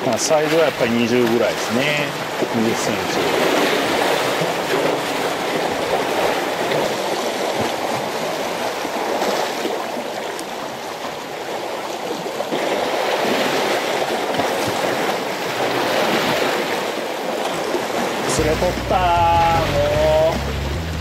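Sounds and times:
seawater washing against breakwater: 0.0 - 21.0.

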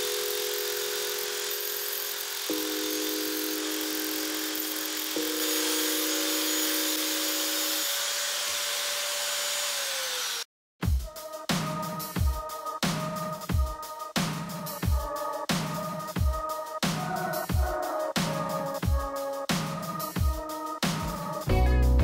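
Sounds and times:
angle grinder grinding steel: 0.0 - 10.5
electronic music with heavy bass: 21.2 - 22.0.

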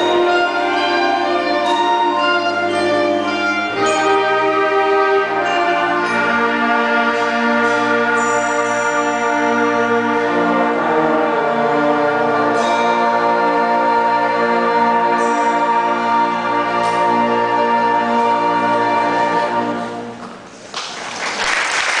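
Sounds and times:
band playing sustained chords: 0.0 - 20.6
applause: 20.6 - 22.0.

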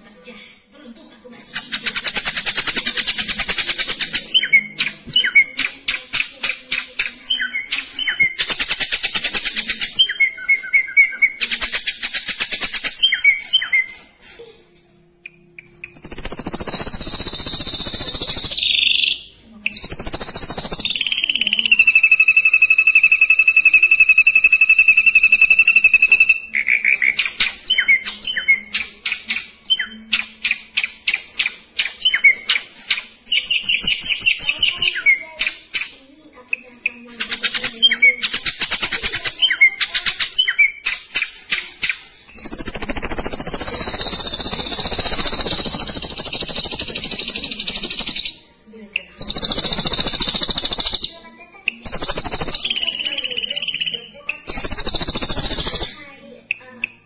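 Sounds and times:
long held bird whistle: 19.9 - 26.5.

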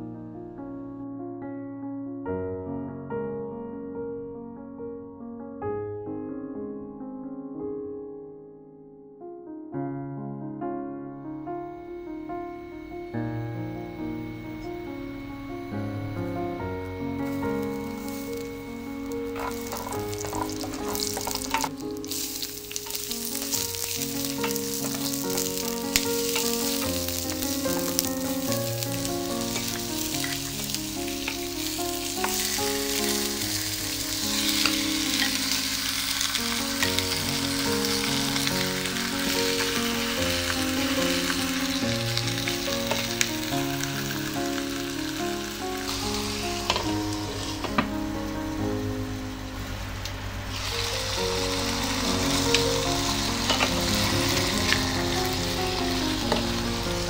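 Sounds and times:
background music: 11.1 - 57.0
food sizzling in hot oil: 12.1 - 57.0.

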